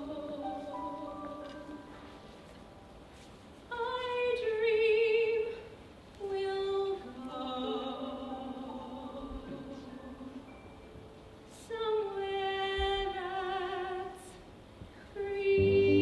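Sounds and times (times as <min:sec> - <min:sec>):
woman singing ballad with vibrato: 0:03.7 - 0:10.5, 0:11.6 - 0:14.4, 0:15.1 - 0:16.0.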